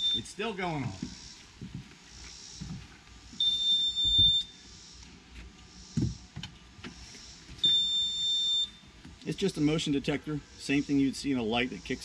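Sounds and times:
alarm beep: 0:00.0 - 0:00.4, 0:03.4 - 0:04.6, 0:07.6 - 0:08.9.

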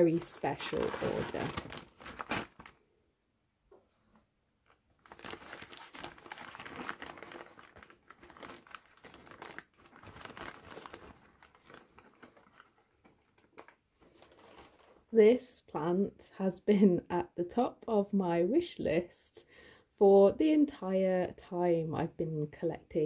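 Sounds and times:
newspaper crinkling: 0:00.0 - 0:02.9, 0:04.6 - 0:15.1.

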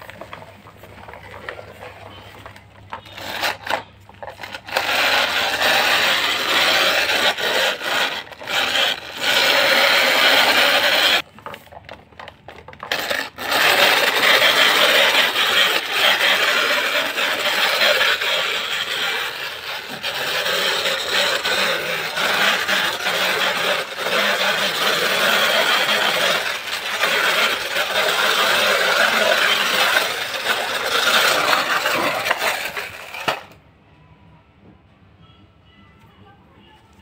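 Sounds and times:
plastic toy truck rattling on tile: 0:00.0 - 0:33.6.

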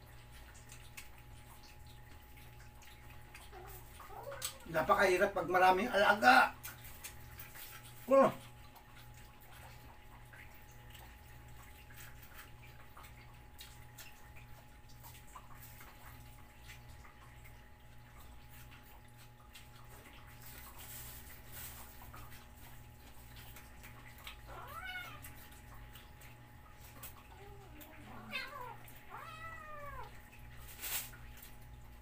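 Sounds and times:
low steady hum: 0:00.0 - 0:32.0
cat meowing: 0:24.5 - 0:25.3, 0:27.4 - 0:30.2.

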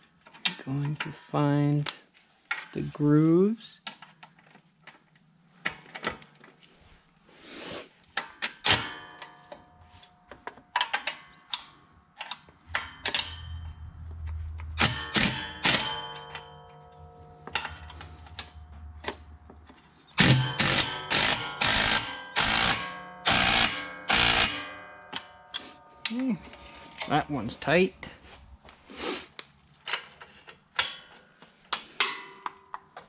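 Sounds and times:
cordless impact driver running: 0:20.2 - 0:24.6.

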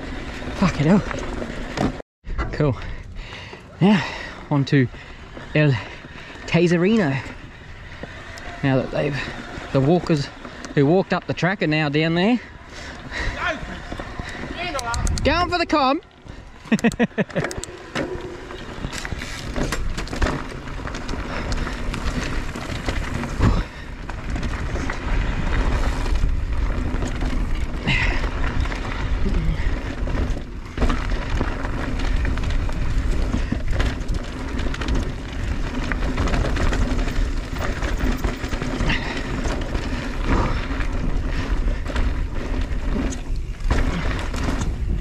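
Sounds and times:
bike rattling over bumps: 0:00.0 - 0:45.0
tyres rolling over dirt: 0:00.0 - 0:45.0
wind buffeting microphone: 0:12.4 - 0:16.6, 0:17.5 - 0:45.0.

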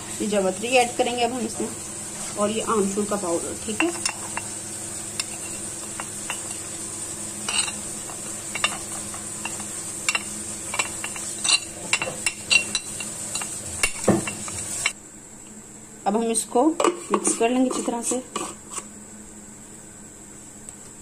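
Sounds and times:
steady hum: 0:00.0 - 0:21.0
metal spoon scraping ceramic plate: 0:05.2 - 0:06.7, 0:07.4 - 0:14.9
spoon clinking on jar: 0:07.5 - 0:14.6.

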